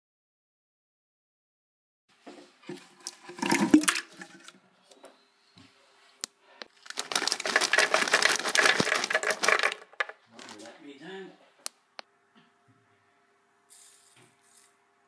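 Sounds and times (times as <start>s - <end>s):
nuts pouring rattle: 6.8s - 10.6s.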